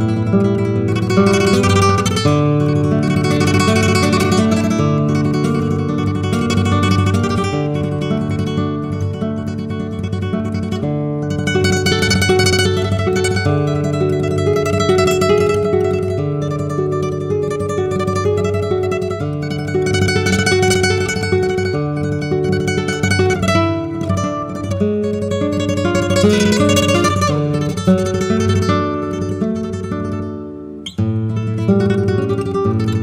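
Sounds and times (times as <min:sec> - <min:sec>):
solo flamenco guitar: 0:00.0 - 0:33.0.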